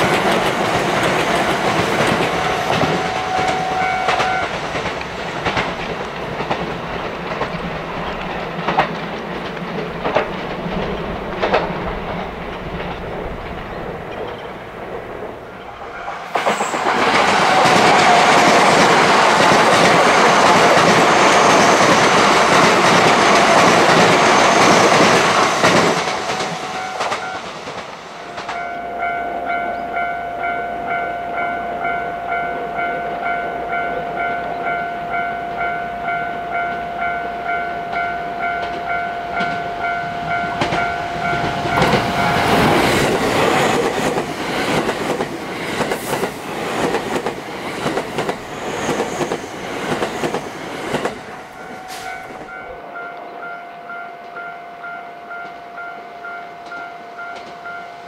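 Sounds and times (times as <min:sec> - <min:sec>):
train wheels clicking over rail joints: 0:00.0 - 0:28.8, 0:37.9 - 0:52.6
train passing in loud rush: 0:00.0 - 0:58.0
train whine: 0:00.0 - 0:58.0.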